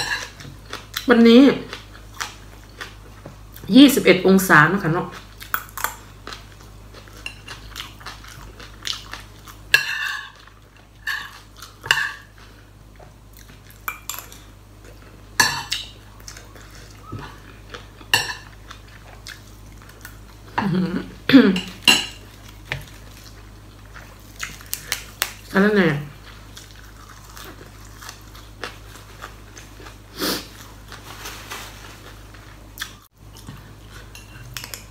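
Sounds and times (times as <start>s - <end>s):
crunchy chewing: 26.2s - 34.9s.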